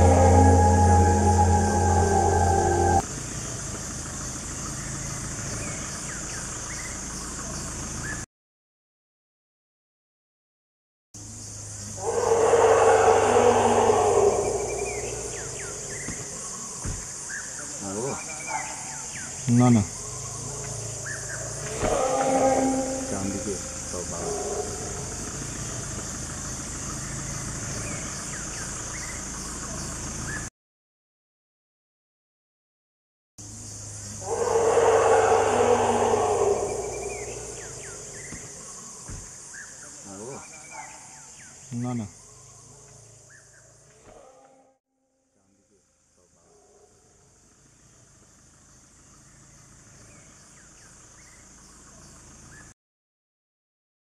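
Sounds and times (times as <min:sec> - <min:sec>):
low steady rumble: 0:00.0 - 0:04.0
high insect drone: 0:00.0 - 0:08.1, 0:11.2 - 0:30.4, 0:33.4 - 0:44.0
bird chirps: 0:11.9 - 0:30.5, 0:34.2 - 0:43.7.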